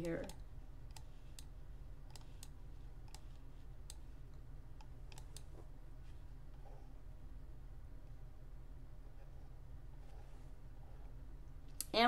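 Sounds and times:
steady low hum: 0:00.0 - 0:12.0
faint mouse clicks: 0:00.1 - 0:01.5, 0:02.1 - 0:05.5.

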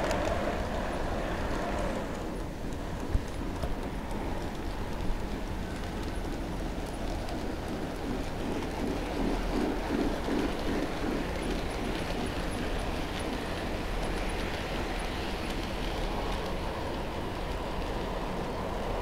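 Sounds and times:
model train wheels clattering: 0:00.0 - 0:18.4.

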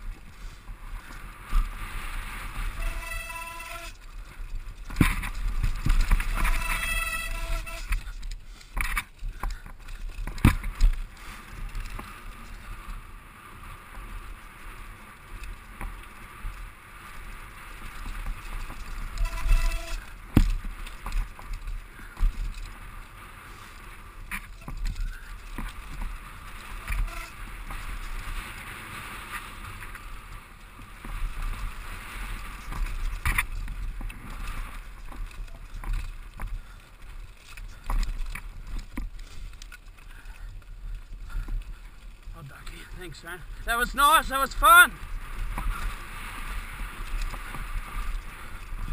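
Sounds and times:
wind rumble on microphone: 0:00.0 - 0:43.7, 0:44.9 - 0:48.9
bike rattling: 0:00.0 - 0:48.9
bike tyres rolling on dirt: 0:00.0 - 0:48.9
bike knocking on rocks: 0:04.7 - 0:11.1, 0:18.0 - 0:22.8, 0:32.5 - 0:36.8.

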